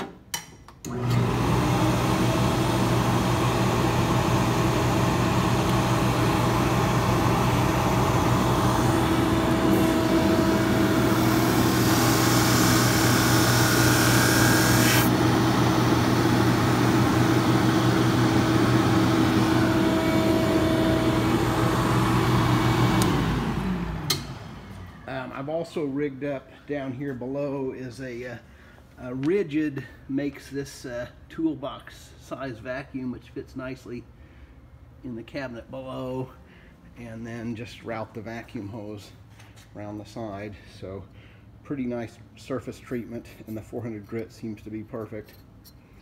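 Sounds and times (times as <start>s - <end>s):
shop vacuum running: 0.8s - 26.6s
drum sander humming: 0.9s - 25.2s.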